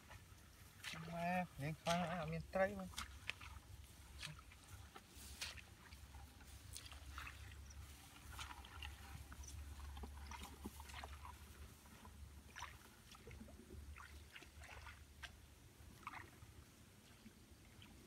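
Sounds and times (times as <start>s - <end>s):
grass rustling underfoot: 0.0s - 13.4s.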